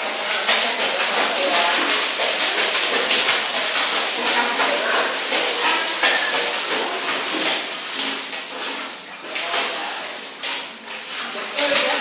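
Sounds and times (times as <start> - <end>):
churning pool water: 0.0 - 12.0
water splashing and dripping: 0.0 - 12.0.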